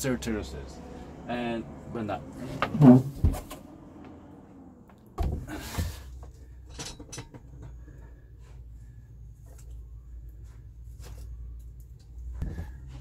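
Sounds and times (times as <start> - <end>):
handling knocks and bumps: 5.2 - 8.0.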